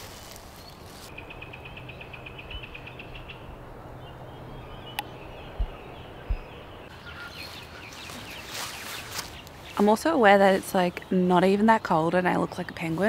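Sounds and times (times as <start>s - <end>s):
plastic sheeting rustling: 0.0s - 1.1s.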